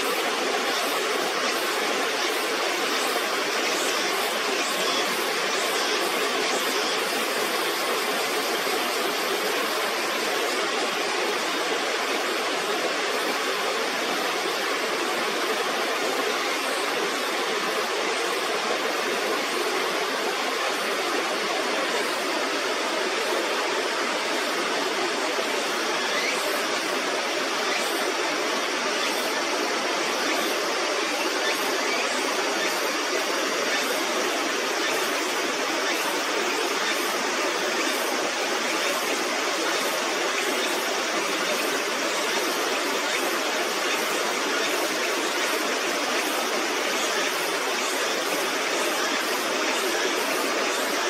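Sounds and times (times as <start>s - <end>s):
river water pouring over a weir: 0.0s - 51.0s.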